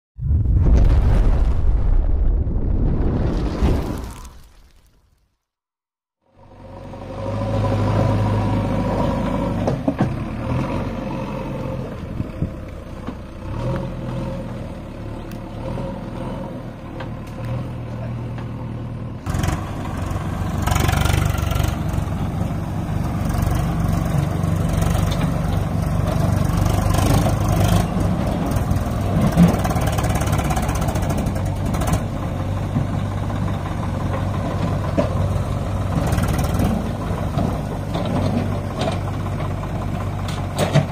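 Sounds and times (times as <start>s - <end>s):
tractor diesel engine running: 6.4s - 40.9s.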